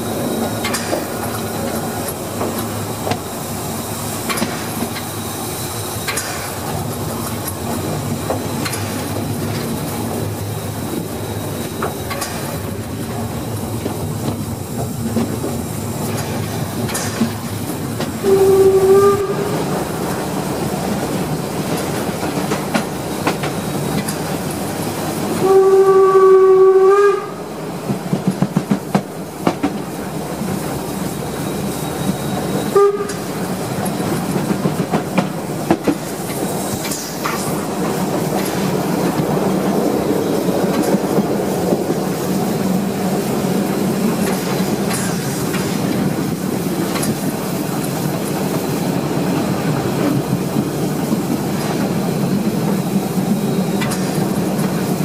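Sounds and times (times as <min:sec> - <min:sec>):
steam locomotive rumble and clatter: 0:00.0 - 0:55.0
steam whistle blasts: 0:18.2 - 0:19.7, 0:25.4 - 0:27.5, 0:32.5 - 0:33.3.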